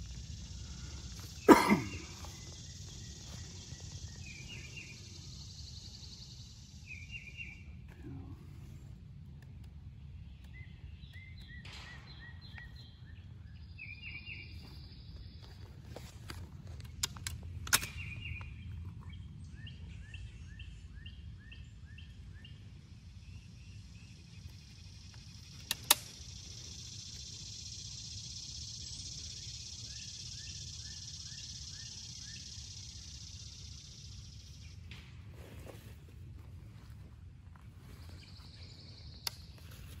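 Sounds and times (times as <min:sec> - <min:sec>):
bird chirping: 0:00.0 - 0:08.3, 0:09.9 - 0:40.0
air rifle metallic clicks: 0:16.3 - 0:18.6, 0:25.2 - 0:26.4.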